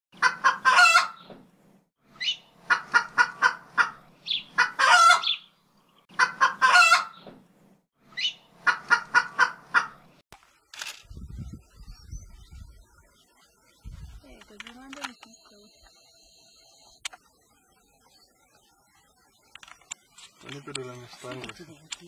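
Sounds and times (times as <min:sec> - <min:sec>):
chicken clucking and squawking: 0:00.2 - 0:01.3, 0:02.2 - 0:05.4, 0:06.1 - 0:07.2, 0:08.2 - 0:10.1.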